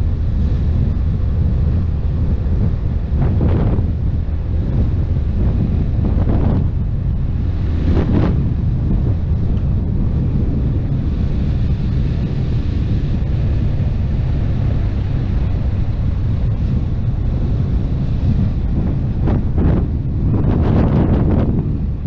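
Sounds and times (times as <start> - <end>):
motorcycle engine drone: 0.0 - 22.0
wind buffeting microphone: 0.0 - 22.0.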